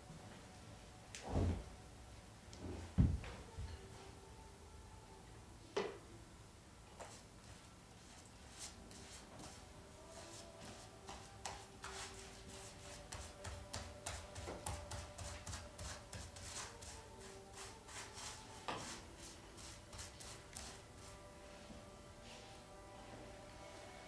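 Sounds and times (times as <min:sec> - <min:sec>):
paintbrush scratching on surface: 0:07.1 - 0:21.3.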